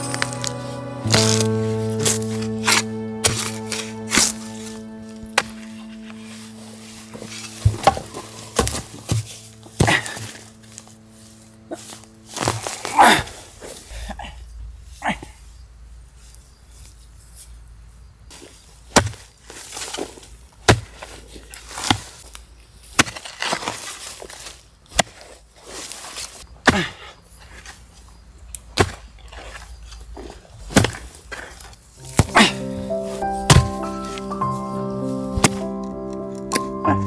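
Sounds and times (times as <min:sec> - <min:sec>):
soil scraping and rustling: 0:00.0 - 0:15.0, 0:18.3 - 0:26.5, 0:27.4 - 0:36.7
hoe chopping into earth: 0:07.5 - 0:10.5, 0:18.9 - 0:19.3, 0:23.0 - 0:25.4, 0:30.7 - 0:32.6, 0:33.5 - 0:33.8.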